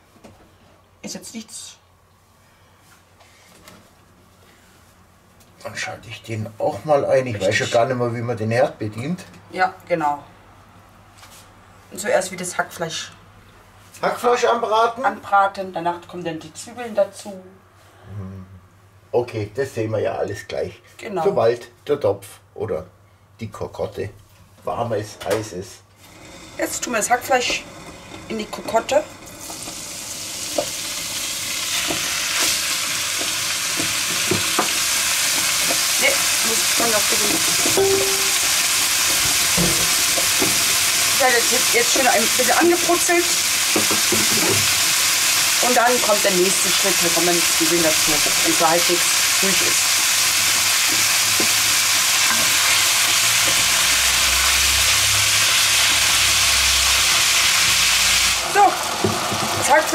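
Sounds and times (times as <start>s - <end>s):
minced meat sizzling in a pot: 26.0s - 59.9s.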